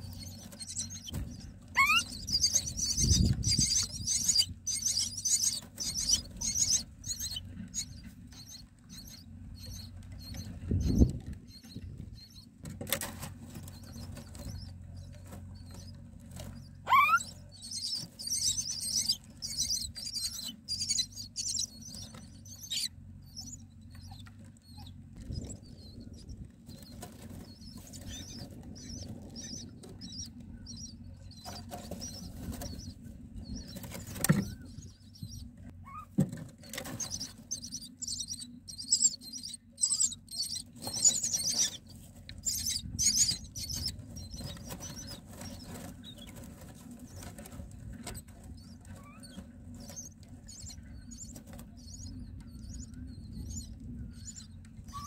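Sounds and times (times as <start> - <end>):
nestlings begging calls: 0.0 - 12.5, 13.5 - 47.4, 48.0 - 55.0
rustling in nest straw: 0.0 - 35.8, 36.4 - 54.9.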